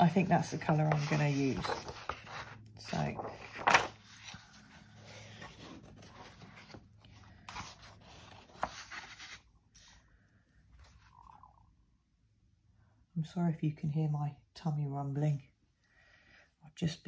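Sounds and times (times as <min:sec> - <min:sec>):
paper scraping and rustling: 0:00.0 - 0:10.0.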